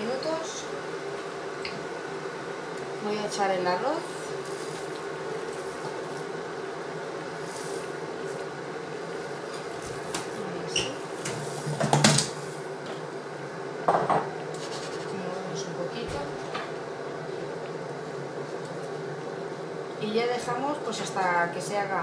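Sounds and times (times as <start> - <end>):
broth simmering: 0.0 - 11.6
steady low hum: 0.0 - 22.0
rice pouring into pan: 7.2 - 8.5.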